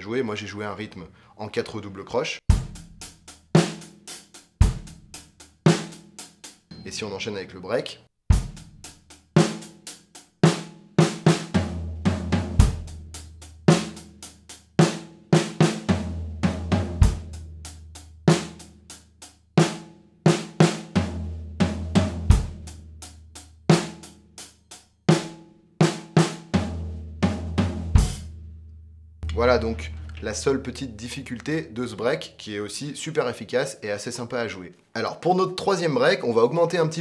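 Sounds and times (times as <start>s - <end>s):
hi-hat groove: 2.5s - 7.0s
floor tom ringing: 6.7s - 7.4s, 29.2s - 31.7s.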